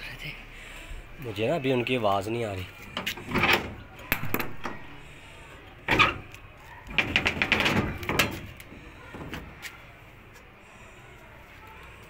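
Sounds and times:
metal door rattling and clattering: 3.0 - 5.0, 5.8 - 9.6.

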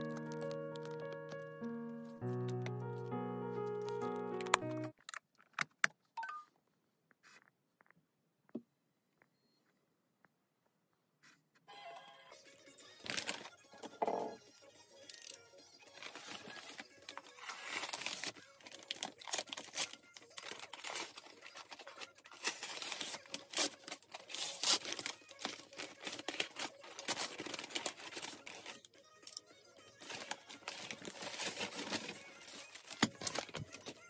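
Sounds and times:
paper bag crinkling and tearing: 0.0 - 1.4, 13.0 - 13.6, 15.9 - 29.0, 30.0 - 34.0
plastic bags rustling: 16.0 - 28.9, 30.0 - 34.0.

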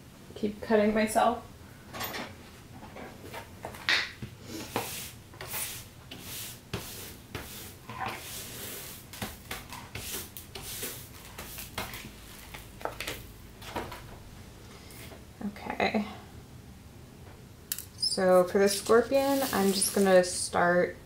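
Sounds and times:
brush sweeping glass crumbs: 4.6 - 12.7, 18.8 - 20.2.

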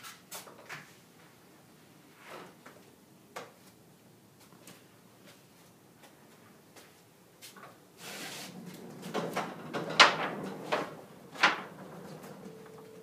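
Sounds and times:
door rolling along track: 8.0 - 13.0
door panels clacking: 8.7 - 12.6.

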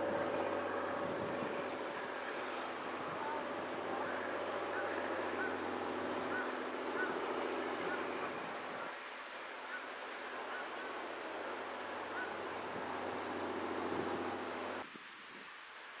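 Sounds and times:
low murmur: 0.0 - 8.9
high-pitched insect chorus: 0.0 - 16.0.

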